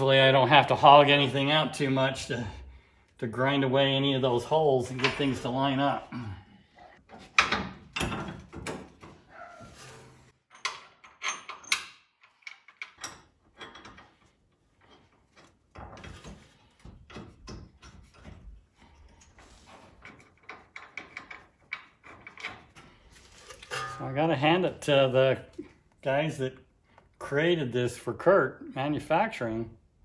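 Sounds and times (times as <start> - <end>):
metal bracket clinking and scraping: 4.8 - 5.9, 19.6 - 24.8.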